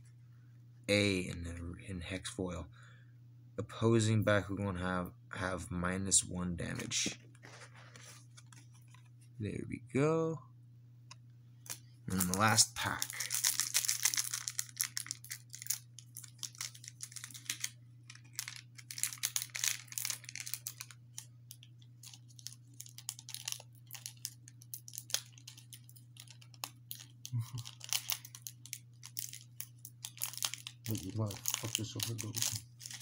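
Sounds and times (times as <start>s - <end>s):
wrapper tearing and crinkling: 12.1s - 33.0s.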